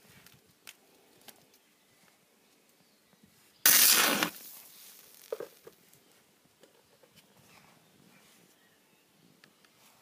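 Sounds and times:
welding arc burst: 0:03.7 - 0:04.6.

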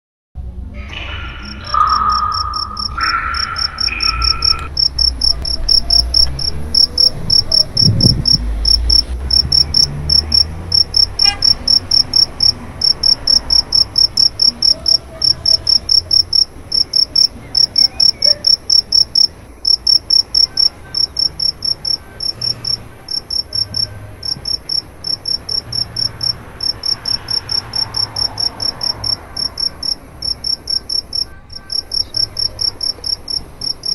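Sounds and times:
stepped lower tones: 0:00.7 - 0:33.9
cricket chirping: 0:00.9 - 0:33.9.

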